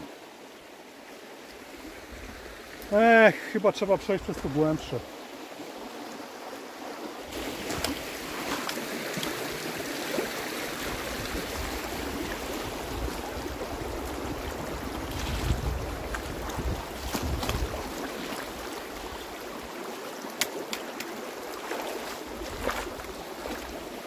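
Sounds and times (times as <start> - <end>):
mountain stream rushing: 0.0 - 24.0.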